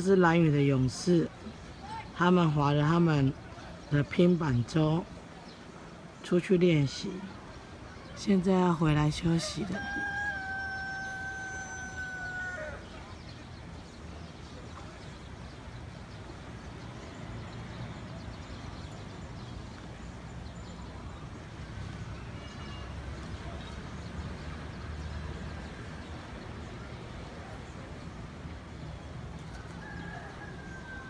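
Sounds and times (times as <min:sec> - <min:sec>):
rooster crowing: 0:09.5 - 0:12.9, 0:29.7 - 0:31.0.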